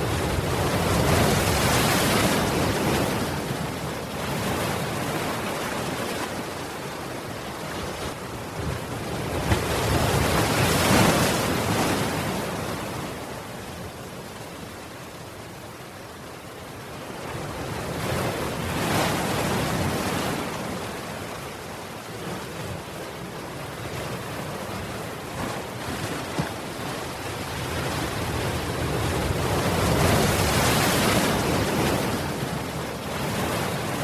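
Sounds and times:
waves breaking over seawall: 0.0s - 13.5s, 24.2s - 34.0s.

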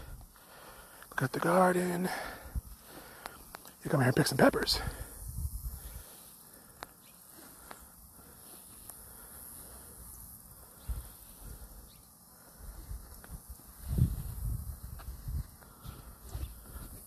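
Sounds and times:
insects chirring: 0.0s - 17.0s
faint ticks: 3.0s - 3.8s, 6.7s - 7.0s, 8.6s - 9.1s, 13.0s - 13.7s.

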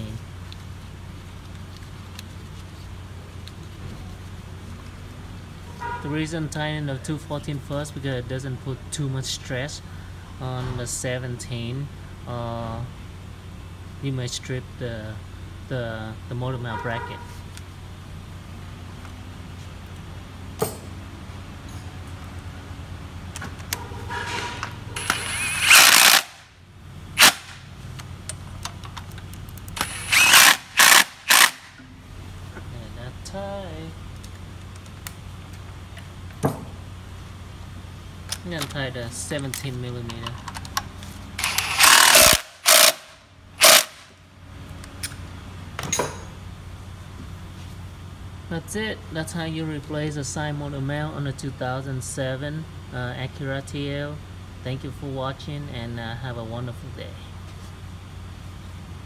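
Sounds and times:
cordless power tool driving bolts: 25.0s - 26.4s, 29.8s - 31.8s, 41.4s - 44.1s.

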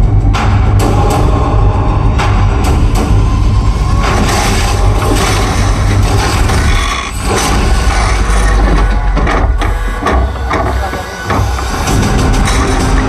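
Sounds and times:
heavy machinery rumble: 0.0s - 13.0s
music: 0.0s - 13.0s
scattered knocks: 4.0s - 13.0s
scraping: 4.0s - 13.0s.

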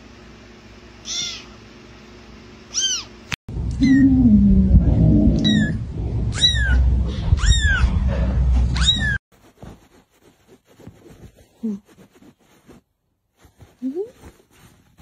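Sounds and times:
kitten mewing: 1.0s - 1.6s, 2.7s - 3.1s, 3.7s - 4.2s
steady low rumble: 3.5s - 9.2s.

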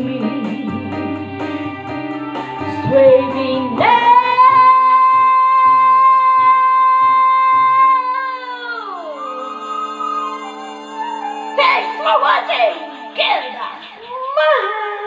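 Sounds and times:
backing music with steady beat: 0.0s - 8.1s
woman singing high note: 2.8s - 15.0s.

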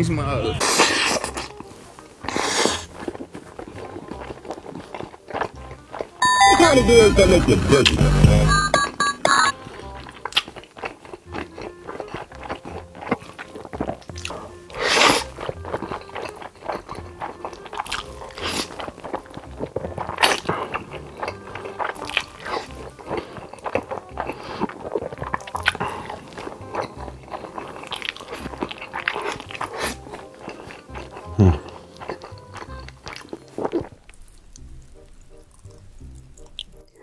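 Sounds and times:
background music: 0.0s - 37.0s
slurping noodles: 0.6s - 6.2s, 9.8s - 36.9s
wet chewing: 0.6s - 6.2s, 9.3s - 37.0s.

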